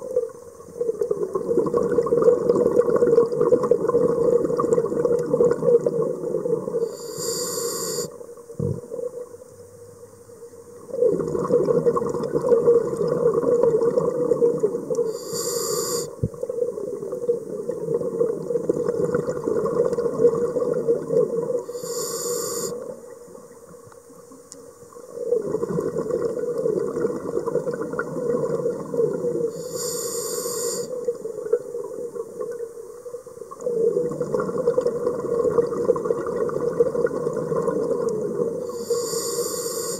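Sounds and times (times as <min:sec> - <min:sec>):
regulator inhalation hiss: 0:06.8 - 0:08.2, 0:15.0 - 0:16.2, 0:21.6 - 0:22.9, 0:29.5 - 0:31.0, 0:38.6 - 0:39.9
bubbling exhalation: 0:11.0 - 0:14.6.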